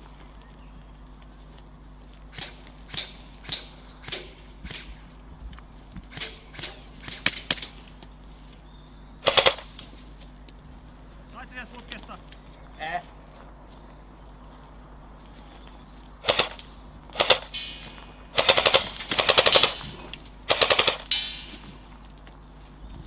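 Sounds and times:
airsoft rifle shots: 2.3s - 5.0s, 6.1s - 7.9s, 9.2s - 9.9s, 16.2s - 21.6s.

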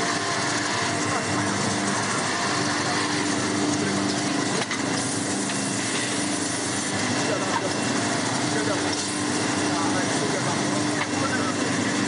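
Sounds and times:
drill motors whirring: 0.0s - 12.0s
machine hum: 0.0s - 12.0s.

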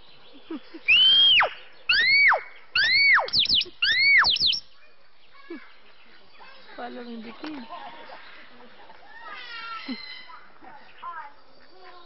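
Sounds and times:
bird swooping whistles: 0.9s - 4.6s
quick falling bird chirps: 0.9s - 4.6s.

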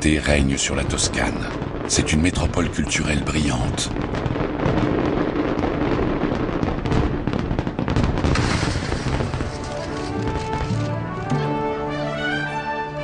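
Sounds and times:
fireworks bursting and crackling: 0.0s - 11.2s
music with held notes: 10.0s - 13.0s.

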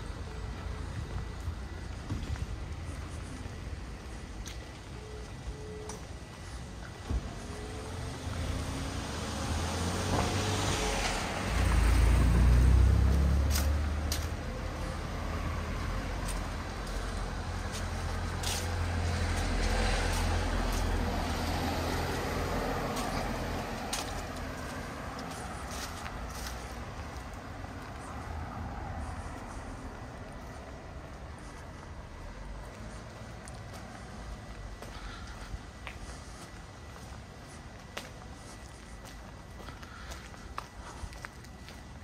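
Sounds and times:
low traffic hum: 0.0s - 42.0s
car passing on wet street: 7.6s - 38.1s.

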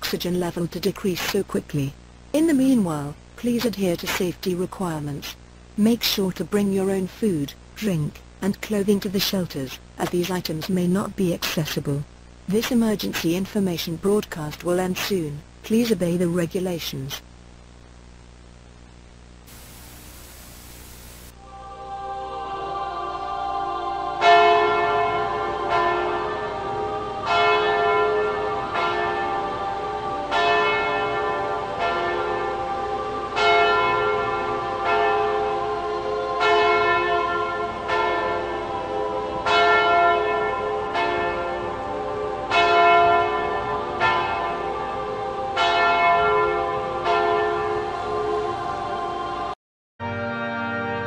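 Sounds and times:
church bell tolling: 24.2s - 48.5s.

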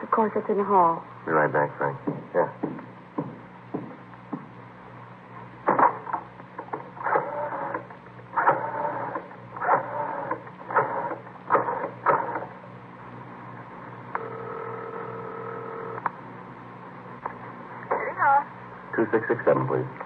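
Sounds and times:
telephone ringing tone: 14.2s - 16.0s.

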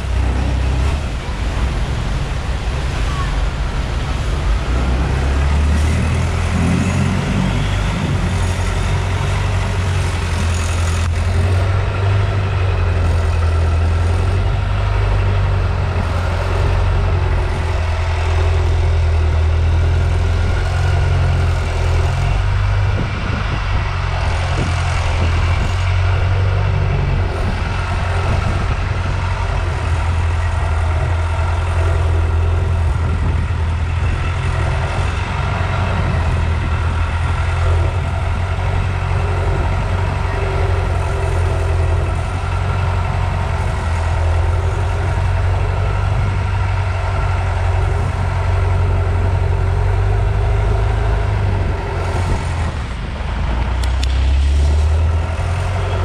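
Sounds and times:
wake churning water: 0.0s - 15.2s
boat engine droning: 0.0s - 56.0s.

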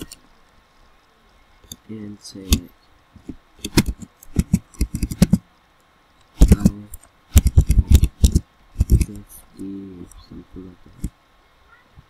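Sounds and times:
keyboard key clicks: 3.6s - 5.4s, 6.3s - 9.2s.

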